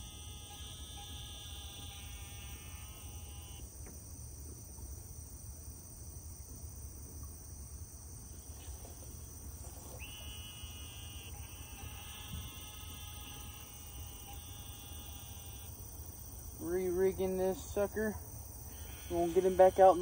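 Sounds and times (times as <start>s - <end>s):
high-pitched buzzing: 0.0s - 3.7s, 9.8s - 20.0s
insects chirring: 0.0s - 20.0s.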